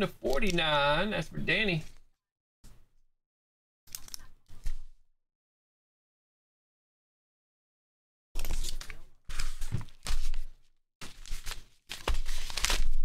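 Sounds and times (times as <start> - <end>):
card packaging rustling: 8.4 - 13.0.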